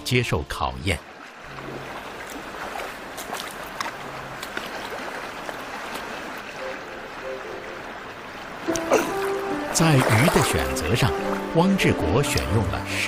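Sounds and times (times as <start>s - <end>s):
stream rushing over stones: 0.0s - 13.0s
boots splashing in water: 1.4s - 6.6s, 8.7s - 11.5s.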